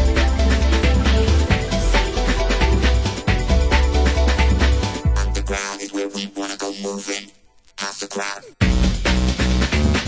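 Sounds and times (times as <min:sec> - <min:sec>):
deep bass line: 0:00.0 - 0:05.6
steady drum beat: 0:00.0 - 0:05.6, 0:08.6 - 0:10.0.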